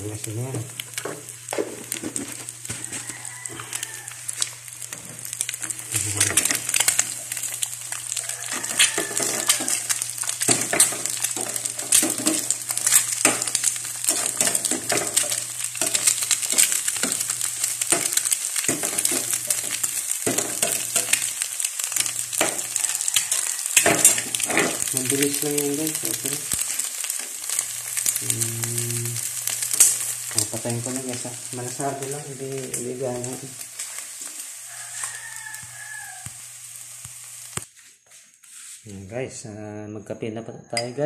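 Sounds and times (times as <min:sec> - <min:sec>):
eggs sizzling in oil: 0:00.0 - 0:39.0
spatula scraping frying pan: 0:04.9 - 0:24.9.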